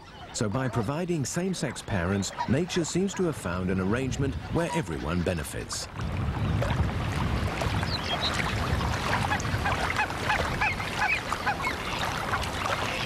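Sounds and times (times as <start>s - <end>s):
geese calling: 0.0s - 5.8s, 9.1s - 13.0s.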